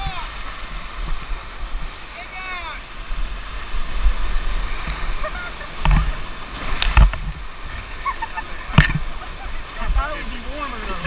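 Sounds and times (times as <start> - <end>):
sharp water splashes: 0.0 - 11.0
whitewater rapids rushing: 0.0 - 11.0
wind buffeting microphone: 3.0 - 11.0.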